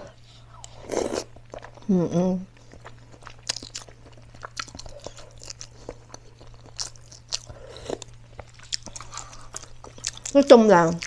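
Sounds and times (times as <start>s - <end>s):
chewing: 2.6s - 11.0s.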